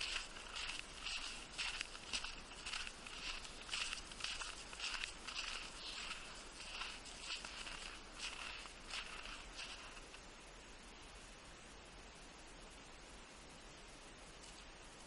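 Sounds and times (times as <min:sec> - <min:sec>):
footsteps crunching in snow: 0:00.0 - 0:10.2.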